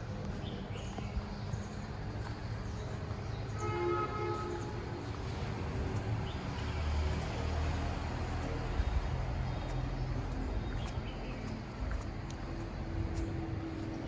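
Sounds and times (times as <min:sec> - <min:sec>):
faint light ticks: 0:09.6 - 0:13.9.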